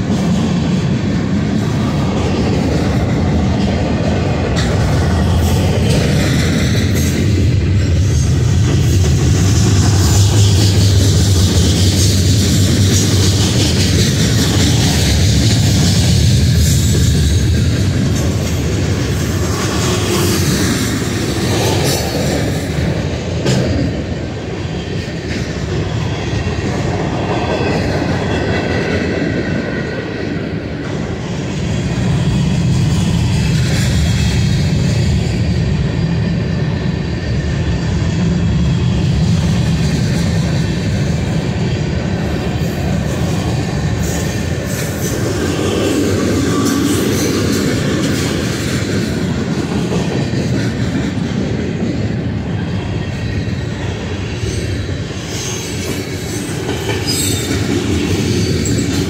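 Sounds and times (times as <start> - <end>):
freight train wheels rumbling on rails: 0.0 - 59.0.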